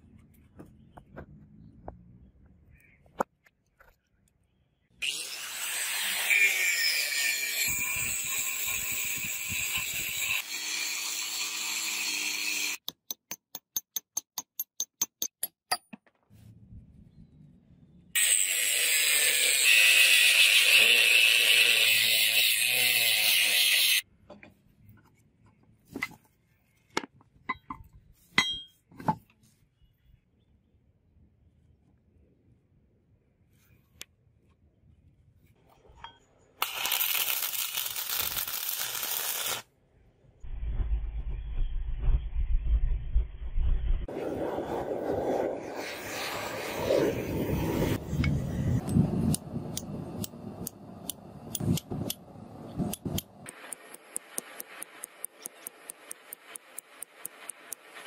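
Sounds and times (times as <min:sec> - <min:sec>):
power tool cutting steel chain: 0:05.0 - 0:12.8, 0:18.2 - 0:24.0, 0:36.6 - 0:39.6.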